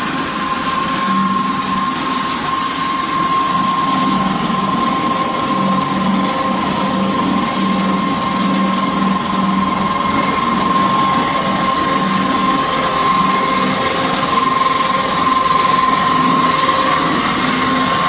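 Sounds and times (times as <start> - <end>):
high machine whine: 0.0 - 18.0.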